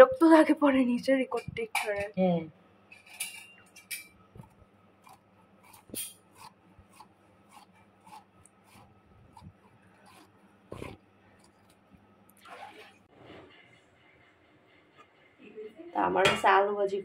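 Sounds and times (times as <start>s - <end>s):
blade slicing potato: 4.4s - 11.8s.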